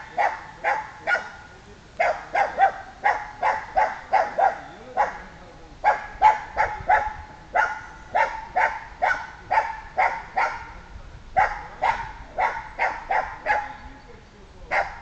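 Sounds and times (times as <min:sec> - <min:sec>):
dog barking: 0:00.0 - 0:10.8, 0:11.4 - 0:13.8, 0:14.7 - 0:15.0.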